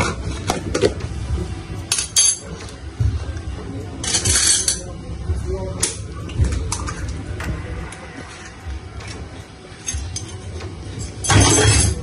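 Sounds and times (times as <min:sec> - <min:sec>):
utensil clinking against dish: 0:01.9 - 0:02.8, 0:04.0 - 0:04.9, 0:09.8 - 0:12.0.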